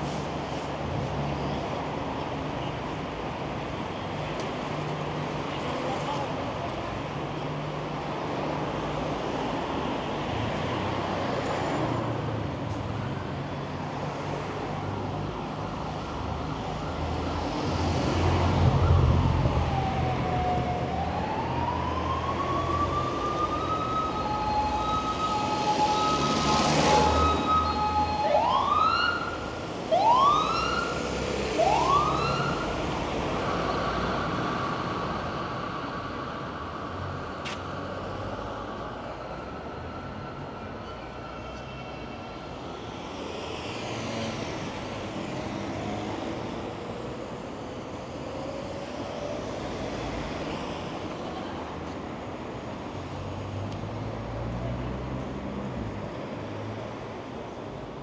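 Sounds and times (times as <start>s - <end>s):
street traffic: 0.0s - 58.0s
emergency vehicle siren: 15.5s - 43.7s.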